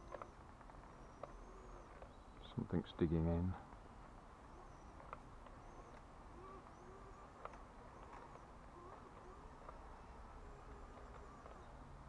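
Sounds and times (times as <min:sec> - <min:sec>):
distant bird chirps: 0:00.0 - 0:12.0
soft clicks: 0:04.8 - 0:12.0.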